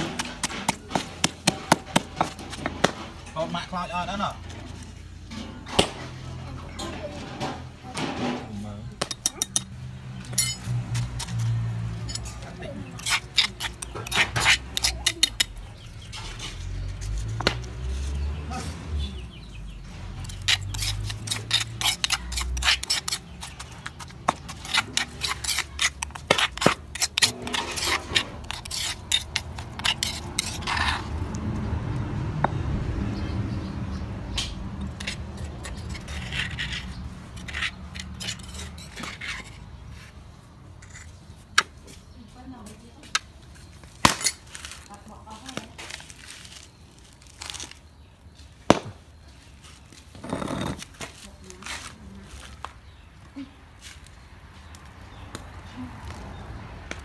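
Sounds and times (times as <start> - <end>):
metal spoon scraping stone mortar: 0.0 - 3.6, 6.8 - 17.4, 20.0 - 31.4, 34.8 - 40.2, 40.8 - 41.7.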